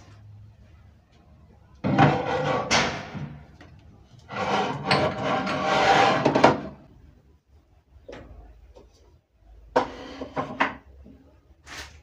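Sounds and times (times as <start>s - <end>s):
scraping against wooden cabinet: 1.8s - 3.4s, 4.3s - 6.8s.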